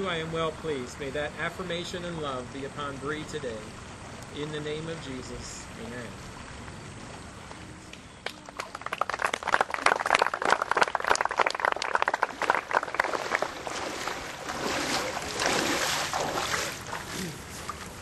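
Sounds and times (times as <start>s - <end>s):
crowd clapping: 7.9s - 14.3s.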